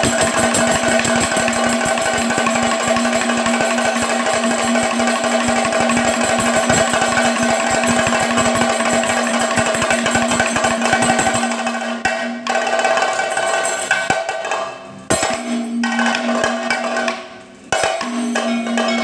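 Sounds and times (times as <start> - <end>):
steady ringing tone: 0.0 - 12.0
hand drums in fast rolls: 0.0 - 14.2
drums beaten with sticks: 0.0 - 19.0.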